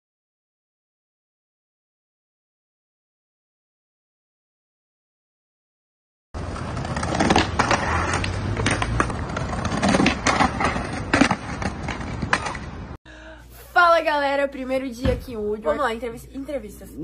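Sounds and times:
skateboard clacks: 6.4 - 12.9
skateboard wheels rolling on bricks: 6.4 - 13.0.

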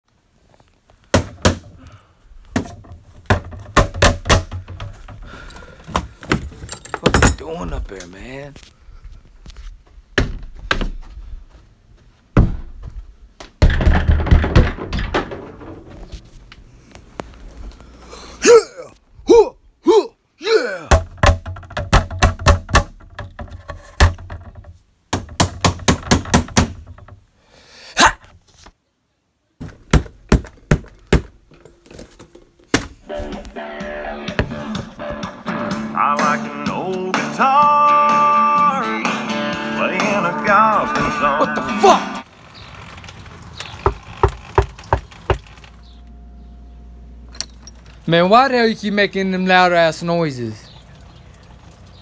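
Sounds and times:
loud thuds and bangs: 13.6 - 16.0
person whooping: 18.4 - 20.9, 41.4 - 42.2.

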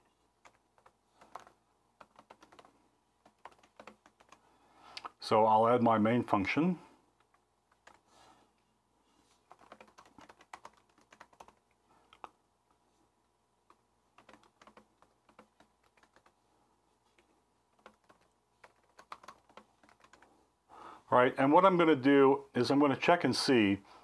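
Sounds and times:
typing on keyboard: 0.4 - 4.4, 7.2 - 8.1, 9.5 - 12.4, 13.7 - 16.4, 17.2 - 20.3.

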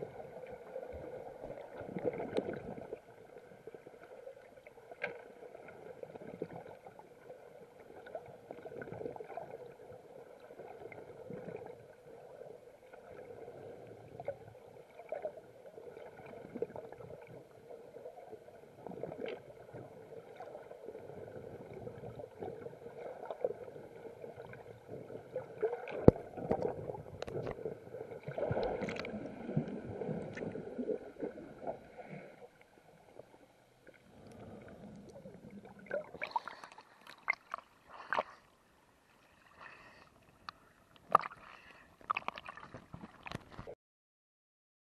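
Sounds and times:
underwater water wash: 0.0 - 43.8
bubbling: 18.7 - 32.0, 33.2 - 38.2, 41.0 - 43.7.

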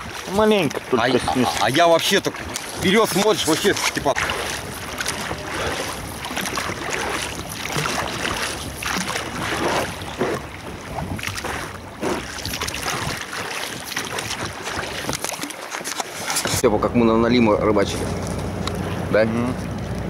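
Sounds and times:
wind buffeting microphone: 0.0 - 15.2
boat motor: 0.0 - 20.0
water rushing past hull: 0.0 - 20.0.

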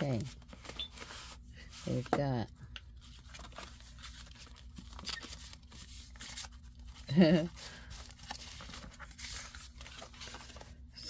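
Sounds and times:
paper rustling and sliding: 0.3 - 2.2, 7.8 - 10.8.

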